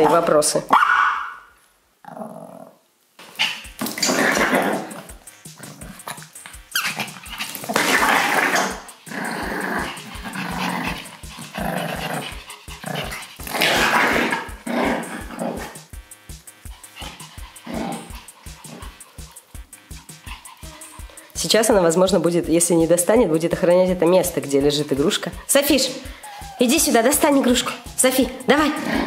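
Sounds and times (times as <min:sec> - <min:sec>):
small dogs growling and snarling: 0:02.0 - 0:15.9, 0:16.6 - 0:21.4, 0:26.1 - 0:29.0.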